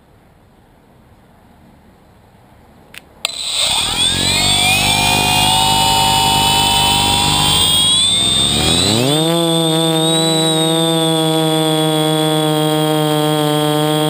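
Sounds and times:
drone motors whining: 0:03.3 - 0:14.0.

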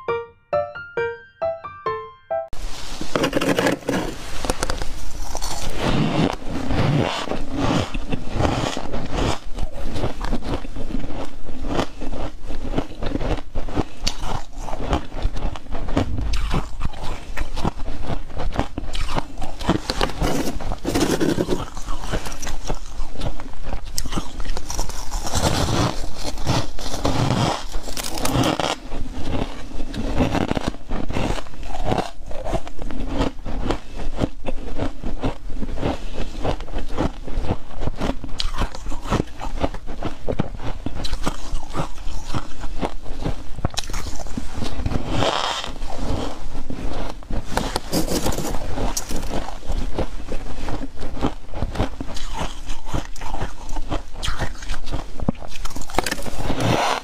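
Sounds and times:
frost scraping in plastic drawer: 0:03.0 - 0:04.4, 0:20.0 - 0:21.7, 0:47.6 - 0:49.3
crunching and chewing ice: 0:03.2 - 0:57.0.

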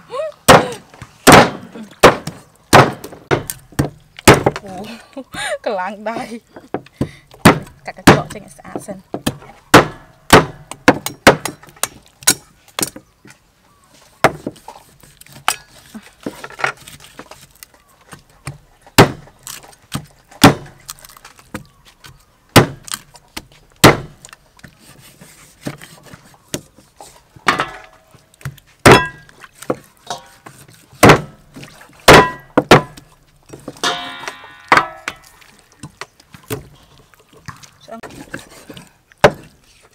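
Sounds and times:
cleaver chopping on wooden block: 0:00.5 - 0:04.6, 0:07.4 - 0:08.4, 0:09.1 - 0:13.0, 0:18.4 - 0:19.3, 0:19.9 - 0:20.7, 0:22.6 - 0:23.0, 0:23.8 - 0:24.2, 0:28.8 - 0:29.2, 0:31.0 - 0:31.4, 0:32.1 - 0:33.0.

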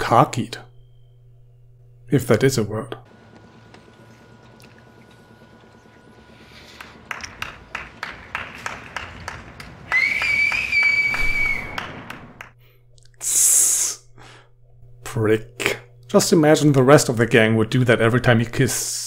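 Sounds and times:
hands clapping: 0:06.7 - 0:12.6
loud shrill whistle: 0:09.9 - 0:12.2.

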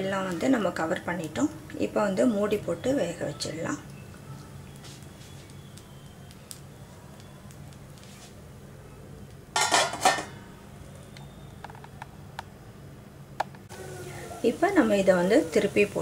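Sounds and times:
metal lid clattering on a pan: 0:09.6 - 0:10.4.

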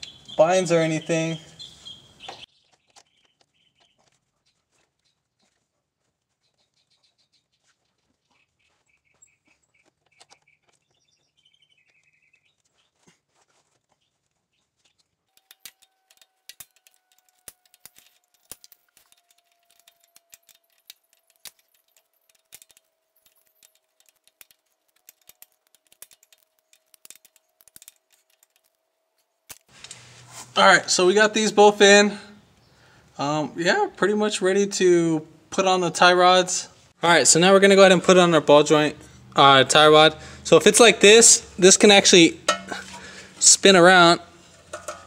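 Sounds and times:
faint bird chirps: 0:00.0 - 0:05.6, 0:06.3 - 0:13.1
hand tools clicking and tapping: 0:08.0 - 0:11.2, 0:11.8 - 0:30.0, 0:41.9 - 0:43.4, 0:44.5 - 0:45.0.

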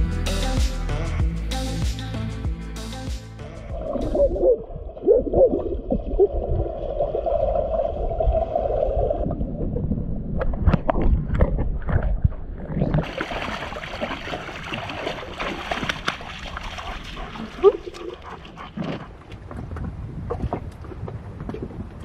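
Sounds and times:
water splashing around legs: 0:13.0 - 0:22.0.

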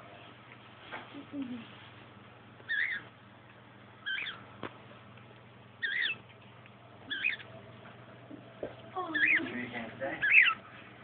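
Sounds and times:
budgerigar chirping: 0:02.7 - 0:03.1, 0:04.0 - 0:04.4, 0:05.8 - 0:06.2, 0:07.1 - 0:07.5, 0:09.1 - 0:09.5, 0:10.2 - 0:10.6.

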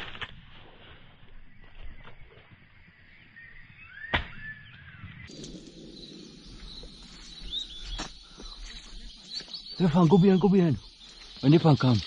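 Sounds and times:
high chirping bird calls: 0:03.2 - 0:12.0.

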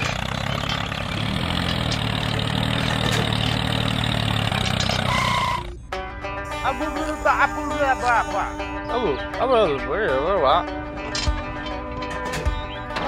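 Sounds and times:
toy tractor engine hum: 0:00.0 - 0:05.7, 0:06.4 - 0:08.8
brief high tone: 0:06.4 - 0:09.1.

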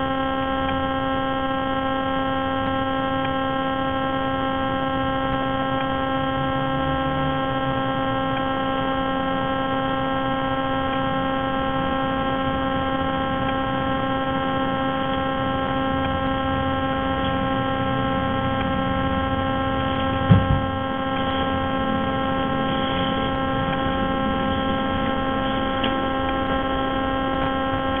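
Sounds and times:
steady electrical hum: 0:00.0 - 0:28.0
sharp thump: 0:20.3 - 0:20.7.

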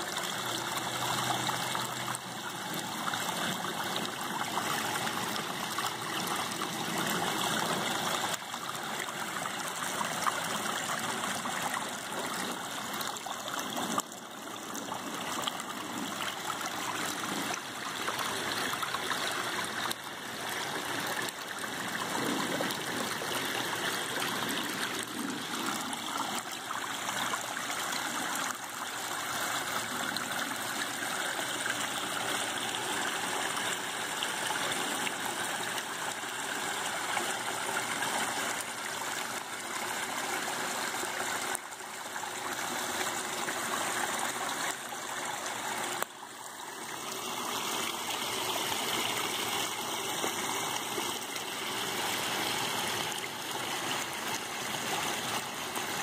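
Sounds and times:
water rushing over stones: 0:00.0 - 0:56.0.

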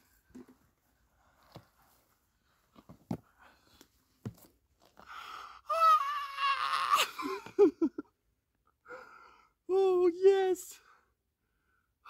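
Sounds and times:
man crying out: 0:05.7 - 0:07.8.

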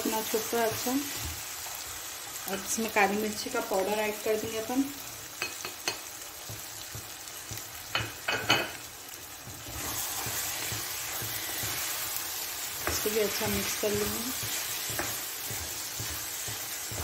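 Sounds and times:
meat sizzling in oil: 0:00.0 - 0:17.0
spatula knocks and taps: 0:05.4 - 0:08.7, 0:12.8 - 0:17.0.

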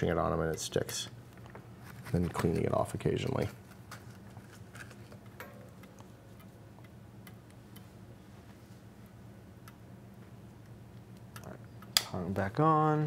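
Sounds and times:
low steady hum: 0:00.0 - 0:13.0
soldering iron ticks and clicks: 0:05.8 - 0:07.9, 0:09.6 - 0:09.8, 0:10.6 - 0:12.2.

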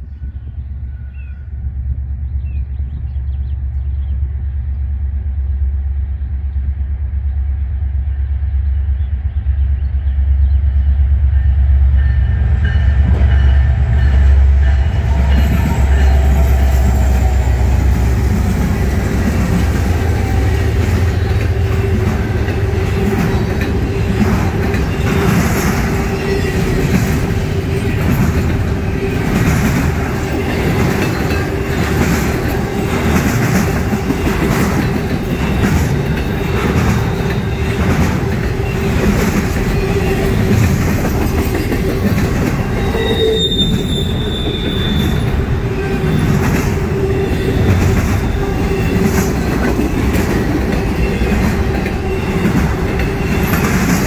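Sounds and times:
diesel locomotive engine rumble: 0:00.0 - 0:54.0
train wheels clicking on rails: 0:11.5 - 0:54.0.

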